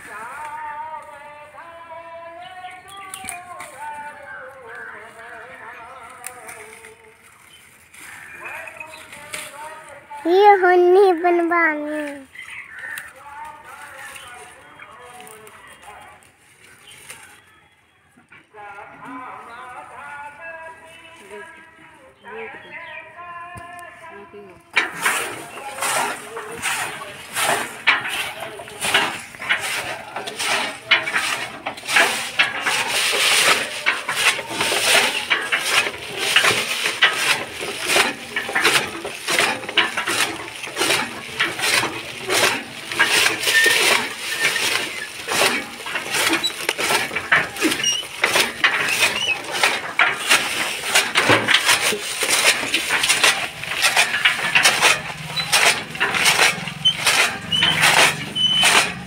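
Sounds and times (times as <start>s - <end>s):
chaff cutter clacking and crunching: 2.7s - 10.6s, 24.6s - 59.0s.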